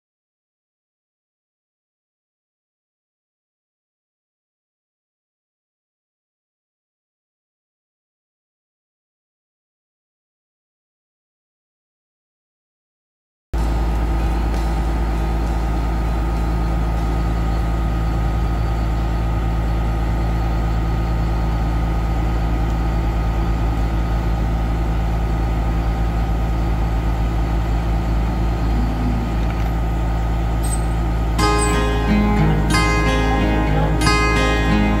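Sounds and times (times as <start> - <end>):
heavy diesel engine rumbling: 13.6 - 35.0.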